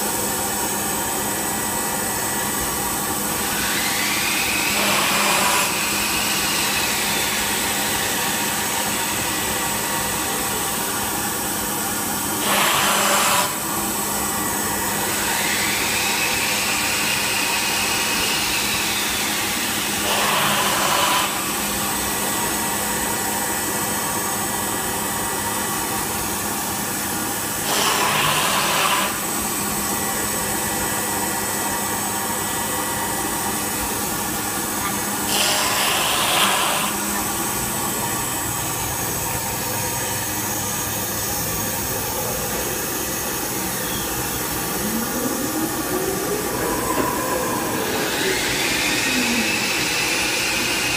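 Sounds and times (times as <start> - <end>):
cnc router machine hum: 0.0 - 50.9
machine whine: 0.0 - 50.9
loud rushes of noise: 41.9 - 50.9.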